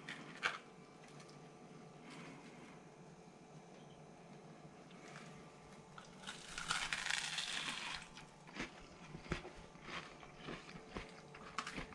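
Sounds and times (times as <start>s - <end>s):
chewing: 6.0s - 11.9s
loud crunch of biting toast: 6.0s - 11.9s.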